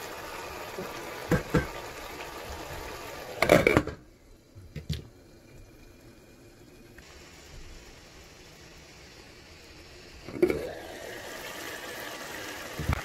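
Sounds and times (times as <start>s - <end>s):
sauce bubbling in a saucepan: 0.0s - 13.0s
wooden spoon knocking on pot: 1.3s - 1.8s.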